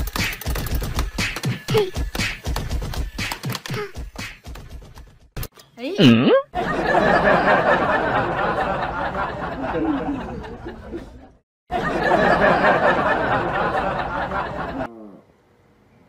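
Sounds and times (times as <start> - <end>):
crowd laughing: 6.5 - 14.9.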